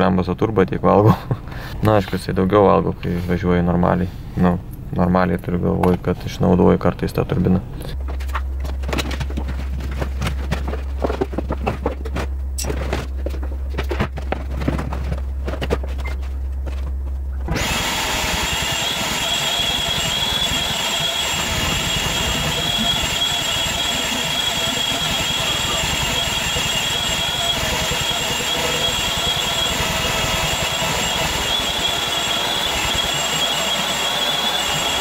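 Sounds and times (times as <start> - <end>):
steady low hum: 0.0 - 35.0
knocks and rustles of work: 8.0 - 17.6
vacuum cleaner running: 17.5 - 35.0.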